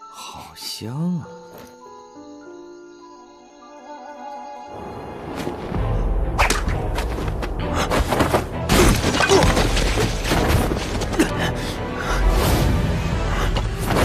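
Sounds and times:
roof tiles shattering: 8.7 - 11.2.

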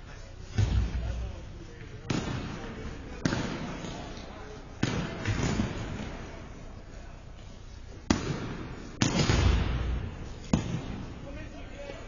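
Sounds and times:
faint voices: 0.0 - 8.1
sticks hitting ball: 2.1 - 2.6, 3.2 - 6.3, 8.1 - 11.1.

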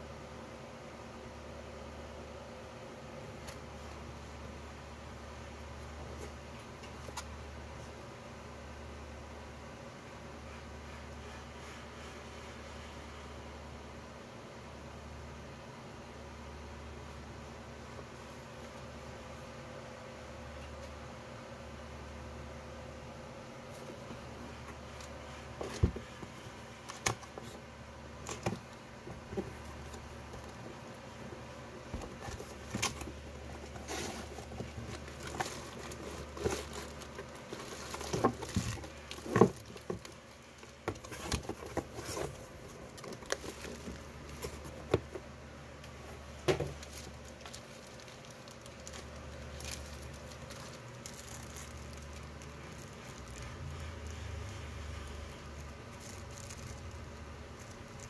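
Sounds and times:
plastic bags crinkling: 28.2 - 45.2, 46.2 - 58.0.

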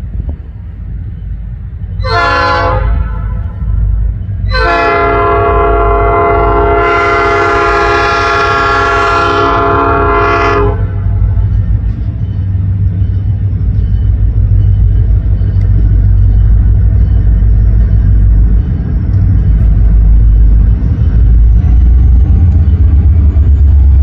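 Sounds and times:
steady low rumble: 0.0 - 24.0
locomotive air horn blasts: 2.0 - 3.6, 4.4 - 11.3.

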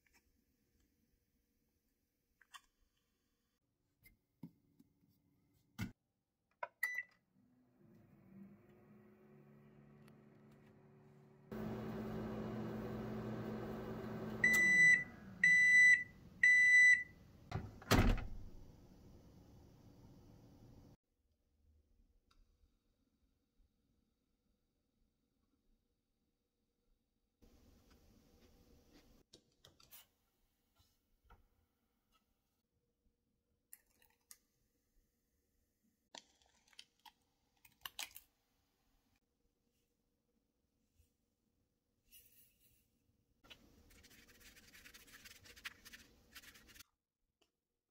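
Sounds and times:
microwave beeps: 6.8 - 7.2, 14.2 - 17.2
microwave oven humming: 7.6 - 18.1.

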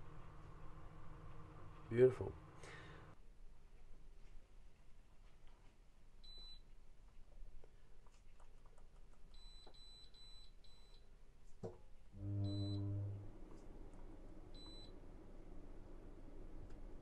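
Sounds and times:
low hum: 12.1 - 17.0
air conditioner short high beeps: 12.2 - 13.2, 14.6 - 15.0.

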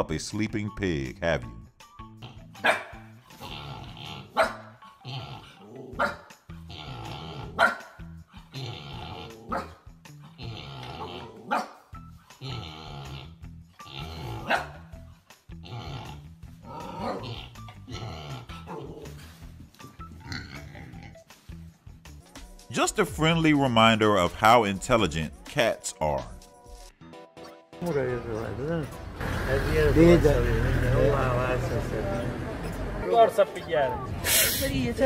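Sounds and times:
dog barking sharply: 2.6 - 3.0, 7.6 - 7.9, 14.5 - 14.8.

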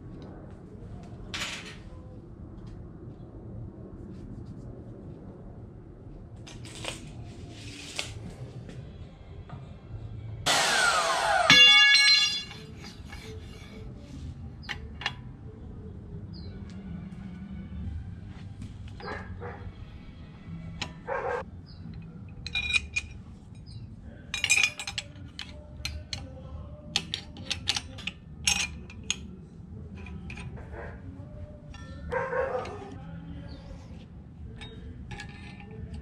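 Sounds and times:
wrench clinking on metal fittings: 11.5 - 13.8, 21.7 - 30.6, 31.7 - 33.6, 34.5 - 36.0
dog barking: 19.0 - 19.7, 21.1 - 21.4, 32.1 - 32.9.

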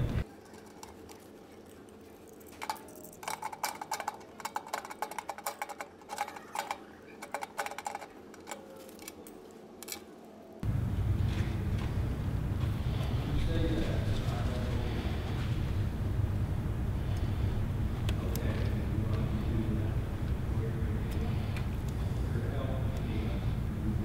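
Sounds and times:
wire clicks and rattles: 0.1 - 10.2
steady low noise: 10.6 - 24.0.

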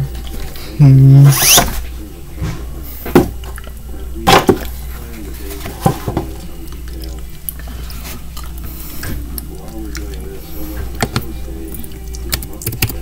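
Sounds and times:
steady low hum: 0.0 - 13.0
person humming: 0.8 - 1.4.

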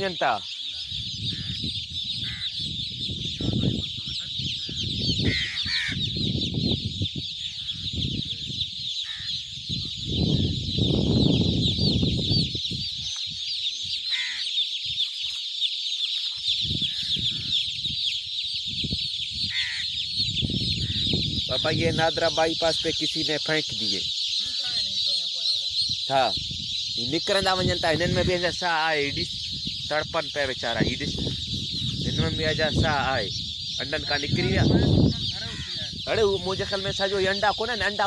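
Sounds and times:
chicks peeping: 0.0 - 38.0
louder chick calls: 0.0 - 38.0.

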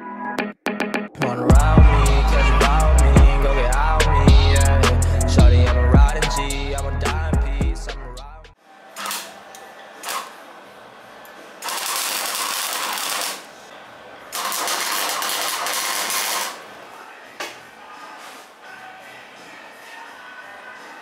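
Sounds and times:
electric arc welder crackling: 9.0 - 9.4, 10.0 - 10.4, 11.6 - 13.7, 14.3 - 16.6.

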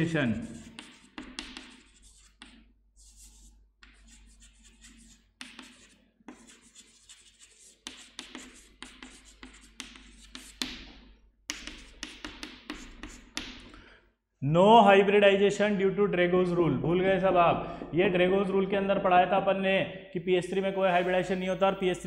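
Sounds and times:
chalk scratching on chalkboard: 0.0 - 13.7, 20.5 - 22.0.

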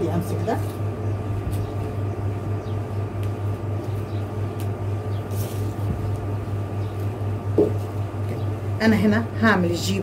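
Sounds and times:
low pulsing hum: 0.0 - 10.0.

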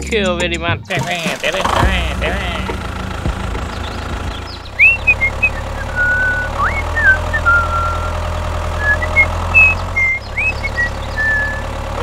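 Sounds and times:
tractor engine idling: 0.0 - 12.0
high whistled chirps: 3.8 - 11.7.

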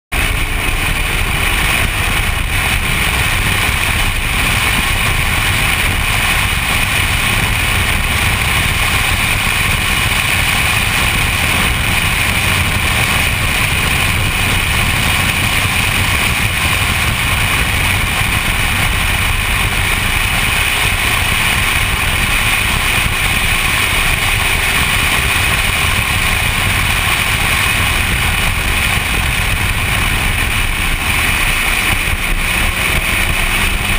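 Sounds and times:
race car engine and wind noise: 0.1 - 33.9.

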